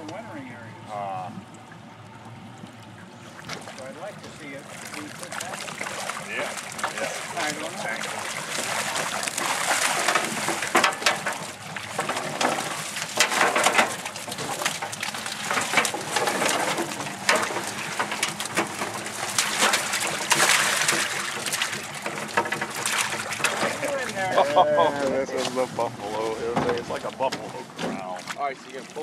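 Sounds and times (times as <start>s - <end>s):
fish thrashing: 2.9s - 29.0s
water splashing and pouring: 3.0s - 29.0s
net hoops knocking on hull: 8.1s - 24.2s.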